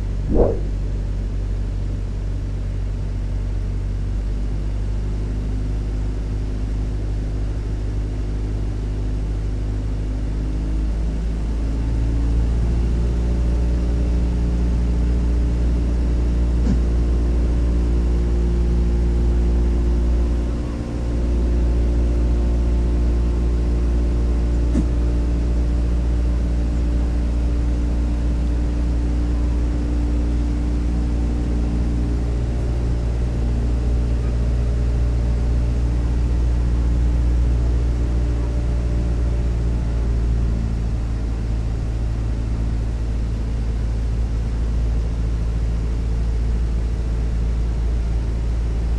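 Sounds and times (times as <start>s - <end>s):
engine-like drone with held tones: 0.0s - 1.1s, 10.8s - 43.2s.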